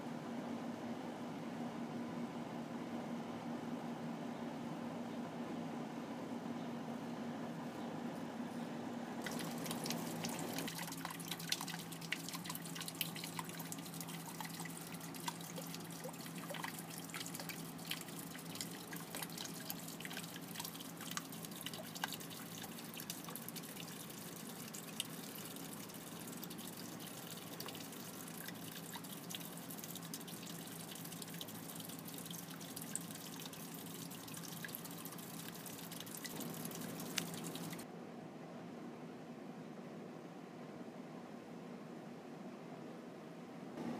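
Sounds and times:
pump humming: 9.2s - 37.9s
water drips and splashes: 9.2s - 37.9s
water trickling: 9.2s - 37.9s.

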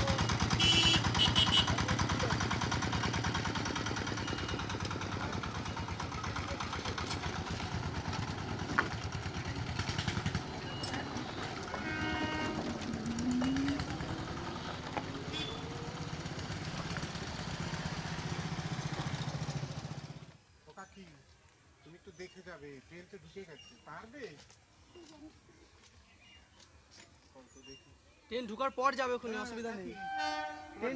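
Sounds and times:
motorcycle engines running: 0.0s - 20.4s.

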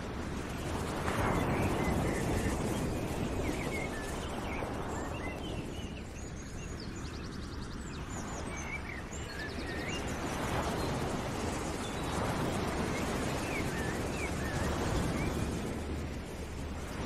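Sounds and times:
steady rushing noise: 7.8s - 17.0s.

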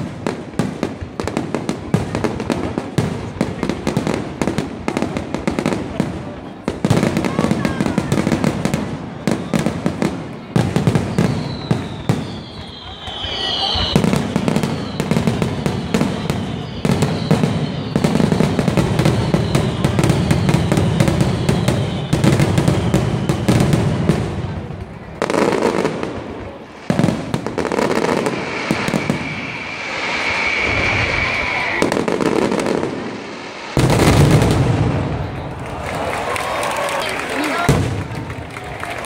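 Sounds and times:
firework bangs and crackling: 0.0s - 39.0s
firework whistle: 10.6s - 24.5s, 26.5s - 35.4s.

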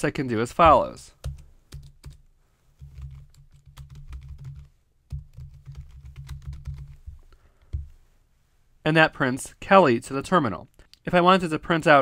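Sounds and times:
typing on computer keyboard: 1.2s - 2.2s, 2.8s - 7.0s.

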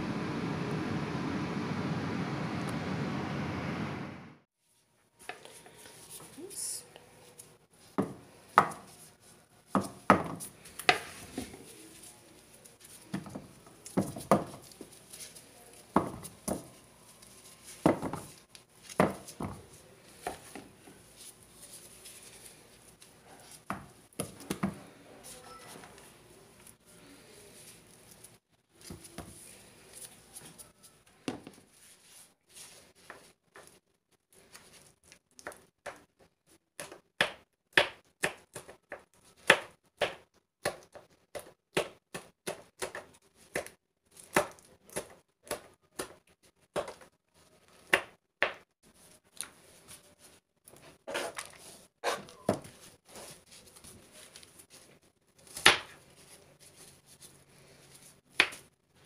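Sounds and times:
knife chopping on plastic board: 8.0s - 8.9s, 15.9s - 16.7s, 18.9s - 19.6s.

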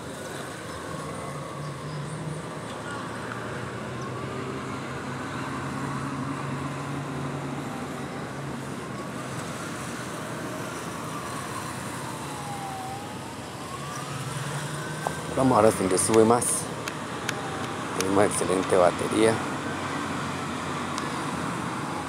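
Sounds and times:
low traffic hum: 0.0s - 22.0s
siren wailing: 10.0s - 22.0s.

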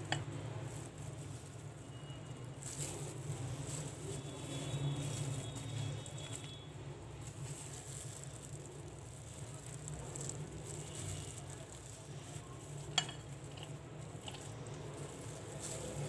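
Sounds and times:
spoon scraping on bread: 10.3s - 16.0s.

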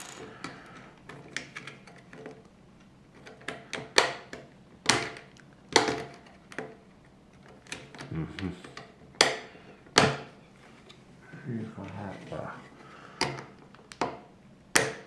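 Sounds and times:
plastic bricks clicking and clattering: 0.0s - 2.2s
plastic bricks snapping: 13.2s - 15.0s.

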